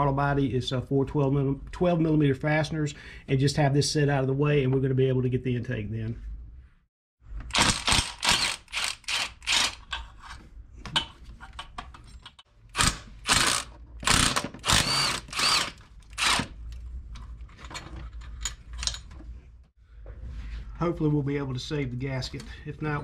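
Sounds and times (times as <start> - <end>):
cordless power tool spinning: 7.5 - 9.8, 12.8 - 16.5.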